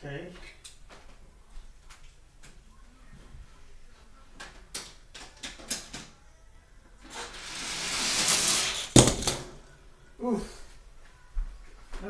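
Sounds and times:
toy car rolling down plastic track: 0:07.0 - 0:09.6.

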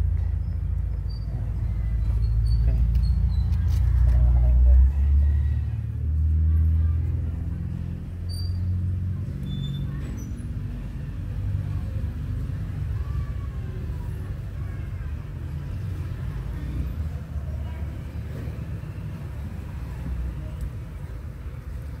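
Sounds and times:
electrical tape squeaks: 0:02.0 - 0:03.9.

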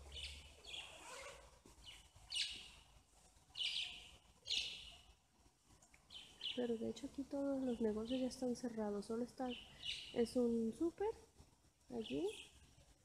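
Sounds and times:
budgerigars chirping: 0:01.8 - 0:02.7, 0:03.6 - 0:04.9.

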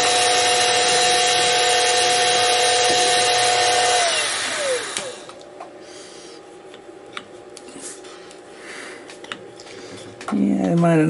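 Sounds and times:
mill motor whining and spinning down: 0:00.0 - 0:05.4.

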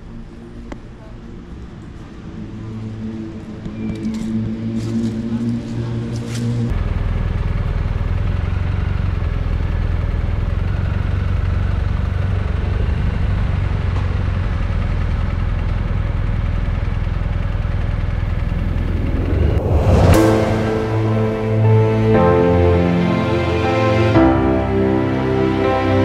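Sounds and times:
motorcycle engine running steadily: 0:06.7 - 0:18.5.

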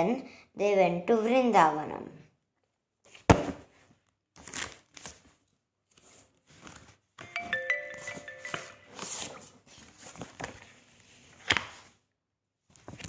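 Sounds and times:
ringing musical notes: 0:07.2 - 0:09.4.

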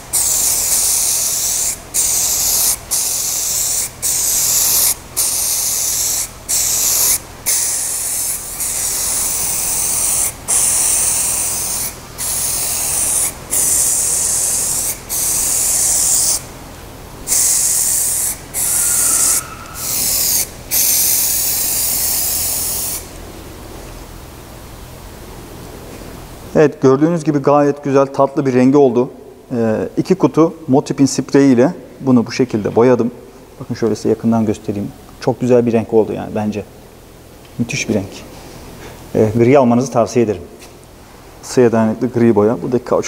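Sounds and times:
aerosol spray can hissing: 0:00.0 - 0:16.5, 0:17.3 - 0:23.1.

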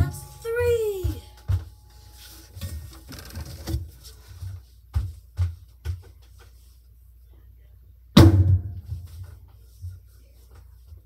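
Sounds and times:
soft footsteps on floor: 0:00.0 - 0:03.0, 0:03.7 - 0:07.2, 0:08.8 - 0:11.0.

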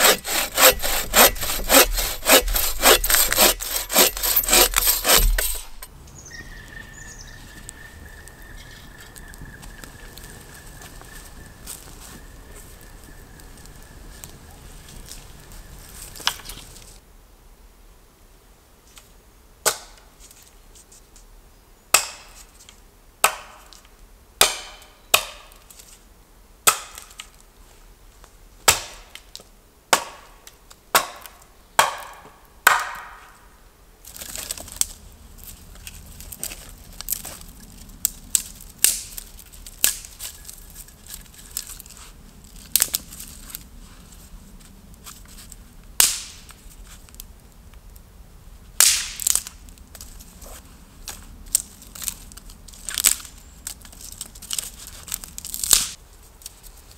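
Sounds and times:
hatchet chopping wood: 0:00.0 - 0:05.9, 0:21.9 - 0:22.3, 0:23.2 - 0:23.6, 0:24.4 - 0:25.6, 0:26.7 - 0:27.0, 0:28.7 - 0:29.1, 0:29.9 - 0:30.3, 0:30.9 - 0:33.2
knife cutting and scraping stick: 0:00.0 - 0:05.9.

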